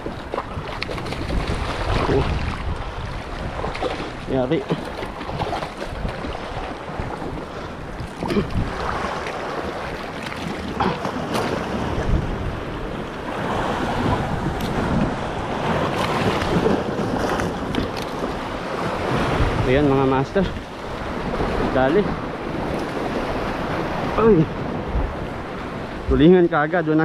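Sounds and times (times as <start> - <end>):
sea waves washing in: 0.0 - 27.0
wind buffeting microphone: 0.0 - 27.0.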